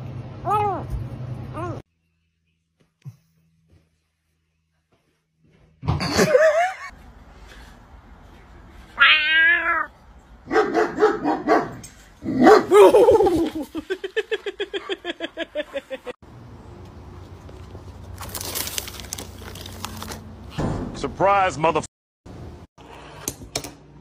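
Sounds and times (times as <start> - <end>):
dogs barking and yelping: 10.4 - 13.6.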